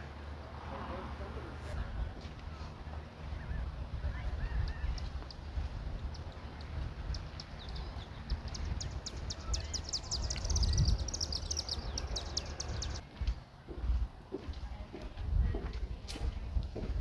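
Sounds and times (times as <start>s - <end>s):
birds chirping: 1.8s - 13.9s.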